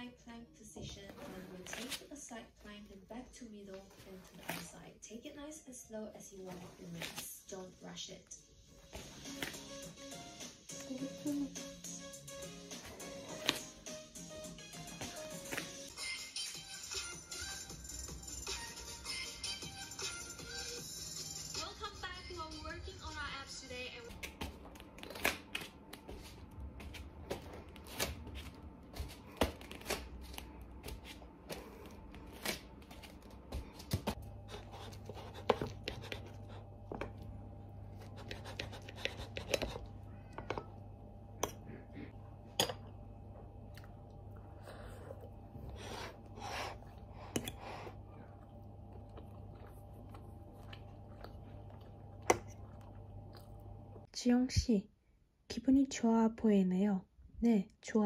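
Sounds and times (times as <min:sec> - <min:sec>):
steady low hum: 0:22.0 - 0:55.0.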